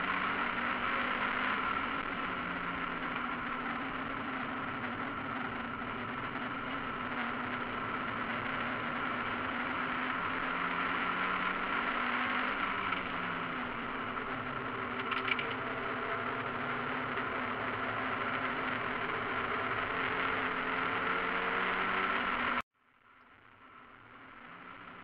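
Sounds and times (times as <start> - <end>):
race car engine at steady revs: 0.0 - 22.6, 23.9 - 25.0
brief clatter: 15.0 - 15.6.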